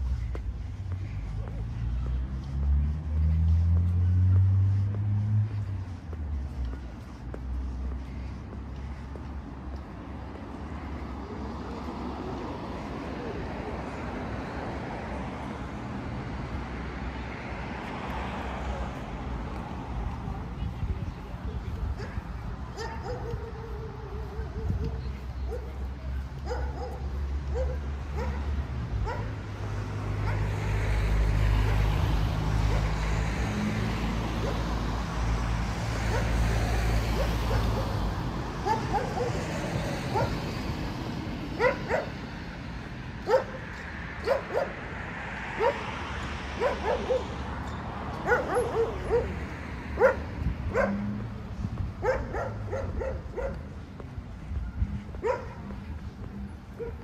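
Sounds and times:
road traffic rumble: 0:00.0 - 0:57.0
dog barking: 0:22.0 - 0:25.8, 0:26.4 - 0:29.4, 0:30.2 - 0:30.5, 0:36.1 - 0:36.4, 0:37.1 - 0:38.0, 0:38.6 - 0:39.5, 0:40.1 - 0:40.4, 0:41.6 - 0:42.2, 0:43.2 - 0:43.6, 0:44.2 - 0:44.8, 0:45.6 - 0:45.8, 0:46.6 - 0:47.4, 0:48.2 - 0:49.4, 0:50.0 - 0:51.1, 0:52.0 - 0:53.7, 0:55.2 - 0:55.7, 0:56.8 - 0:57.0.

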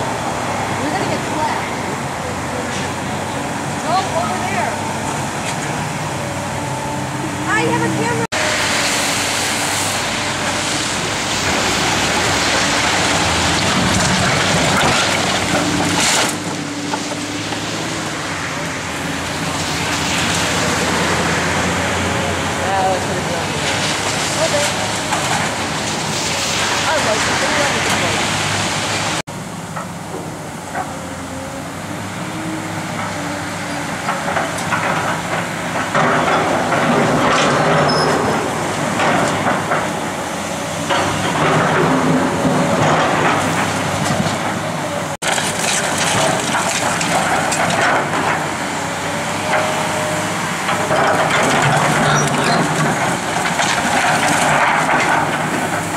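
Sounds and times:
excavator running: 0:00.0 - 0:55.9
debris crashing and crumbling: 0:07.5 - 0:29.2, 0:33.8 - 0:55.9.

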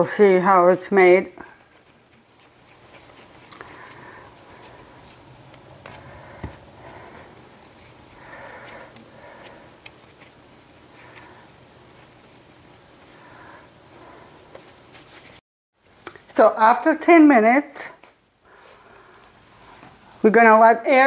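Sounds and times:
hands patting dough: 0:00.0 - 0:15.4.

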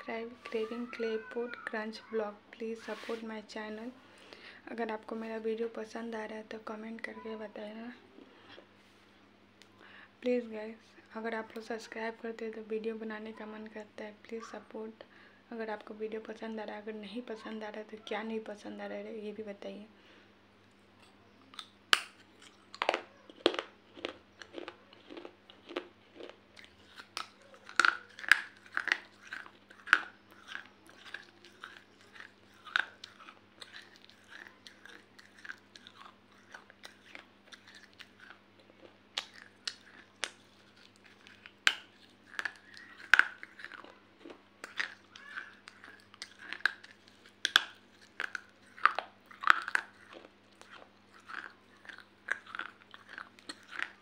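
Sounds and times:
crunchy chewing and biting: 0:21.0 - 0:54.0.

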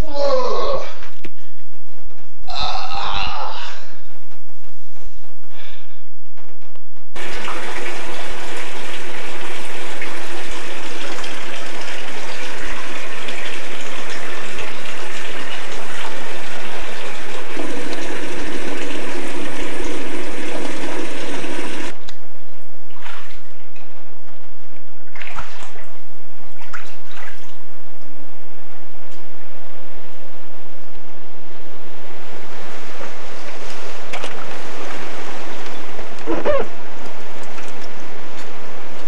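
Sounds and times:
floodwater rushing: 0:07.2 - 0:22.0.

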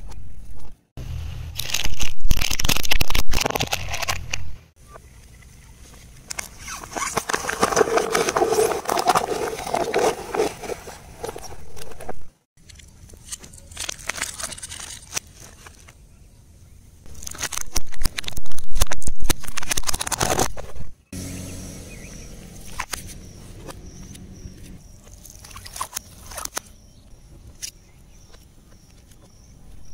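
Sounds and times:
paper cups crumpling under tyre: 0:01.6 - 0:04.3, 0:06.6 - 0:11.6, 0:13.4 - 0:15.9.

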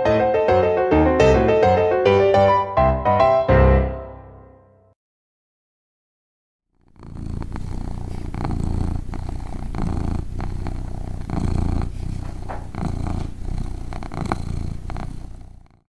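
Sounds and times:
cat purring: 0:06.8 - 0:15.8.

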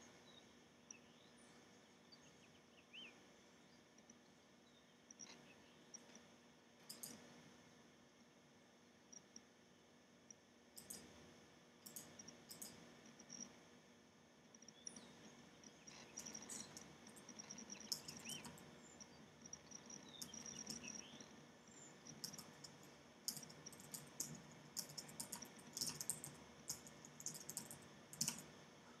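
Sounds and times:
faint high chirping: 0:06.9 - 0:07.3, 0:10.8 - 0:11.2, 0:11.8 - 0:13.6, 0:14.5 - 0:29.0
faint clicks and taps: 0:14.5 - 0:21.3, 0:22.0 - 0:28.6.

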